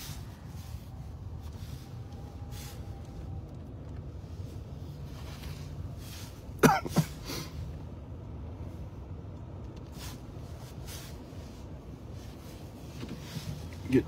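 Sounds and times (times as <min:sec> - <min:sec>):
vehicle cab rumble: 0:00.0 - 0:14.0
person coughing: 0:06.6 - 0:07.5.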